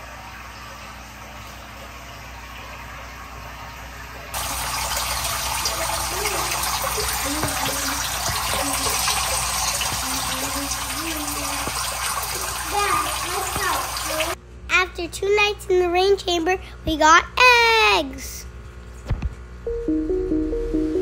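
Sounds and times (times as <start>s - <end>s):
water splashing: 4.4s - 14.4s
water spraying into plastic tub: 4.4s - 14.4s.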